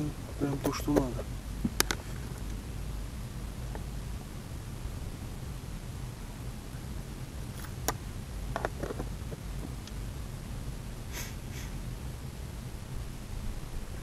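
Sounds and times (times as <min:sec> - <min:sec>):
person sniffing: 0:11.1 - 0:11.8.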